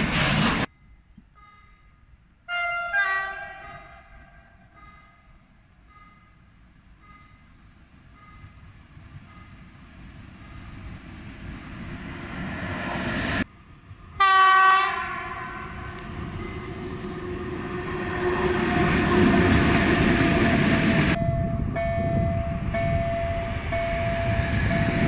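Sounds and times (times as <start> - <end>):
train rumble: 0.0 - 1.8, 4.0 - 25.0
train horn blast: 2.5 - 4.8, 14.2 - 19.6
level crossing warning tone: 15.6 - 25.0.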